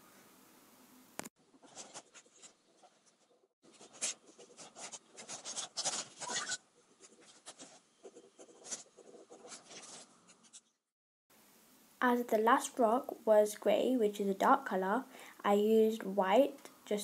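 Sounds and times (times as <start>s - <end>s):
pen scratching on rock: 3.7s - 10.7s.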